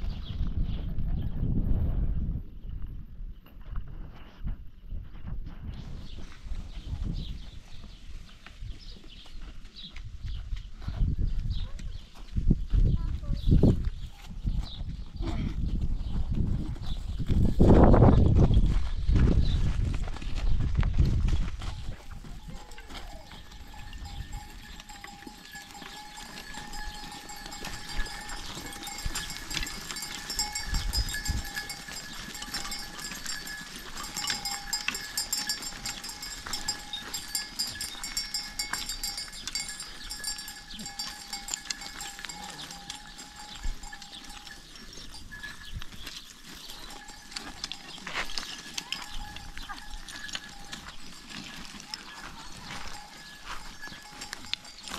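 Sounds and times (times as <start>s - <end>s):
goat bells jingling: 21.5s - 54.9s.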